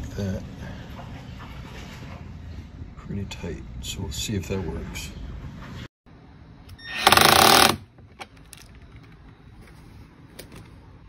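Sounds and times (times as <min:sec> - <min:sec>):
power driver rapid hammering: 0:07.0 - 0:07.8.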